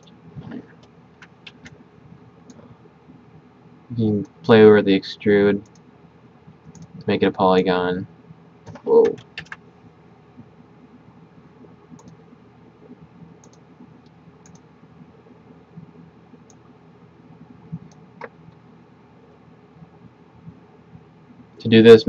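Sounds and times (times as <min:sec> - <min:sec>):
low steady room hum: 0:00.0 - 0:22.0
faint computer mouse clicks: 0:06.6 - 0:07.0, 0:11.9 - 0:12.2, 0:13.4 - 0:14.7.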